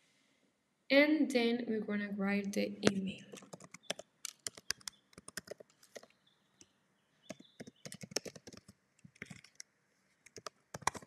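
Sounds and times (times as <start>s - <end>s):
computer keyboard typing: 2.8s - 6.1s, 7.3s - 9.6s, 10.2s - 11.0s.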